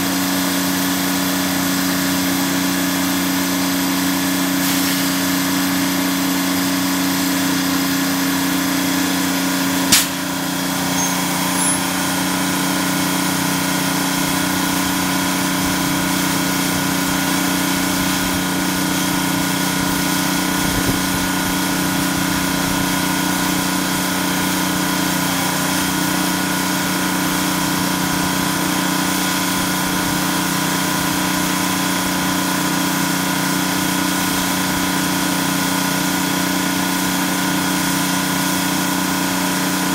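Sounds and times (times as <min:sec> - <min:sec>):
crane engine droning: 0:00.0 - 0:39.9
sharp knock: 0:09.9 - 0:10.2.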